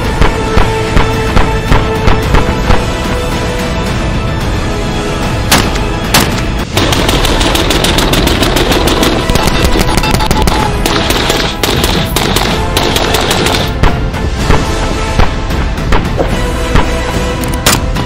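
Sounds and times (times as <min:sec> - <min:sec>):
background music: 0:00.0 - 0:18.0
rifle gunshots: 0:05.5 - 0:13.9.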